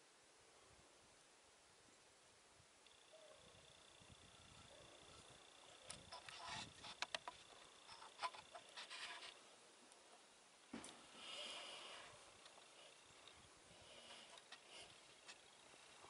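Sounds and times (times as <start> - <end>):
soft hiss: 0.0 - 16.0
faint rustling: 4.5 - 16.0.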